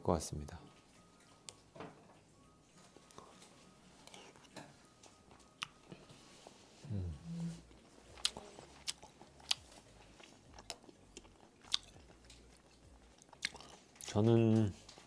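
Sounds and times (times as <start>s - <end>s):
person chewing: 5.3s - 14.2s
person humming low: 6.8s - 7.7s.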